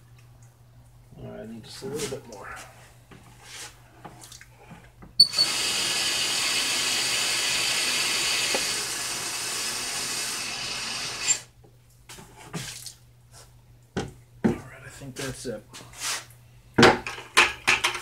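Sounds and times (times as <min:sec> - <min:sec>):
faucet water running into bucket: 0:05.2 - 0:11.5.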